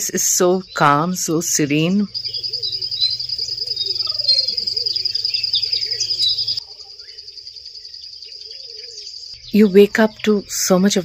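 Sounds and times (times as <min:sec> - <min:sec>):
birds chirping: 0:00.0 - 0:11.0
low wavering call: 0:02.1 - 0:07.2
pulsing high insect trill: 0:02.1 - 0:09.9.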